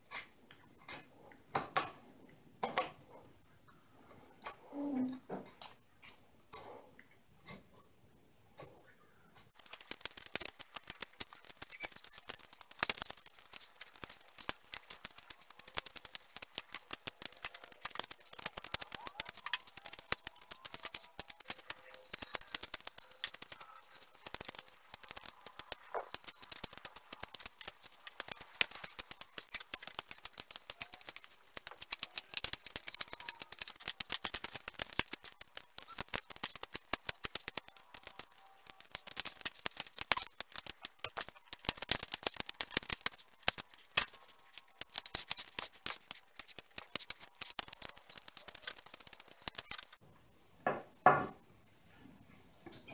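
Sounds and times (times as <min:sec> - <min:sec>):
knife whittling wood: 0:09.6 - 0:50.0.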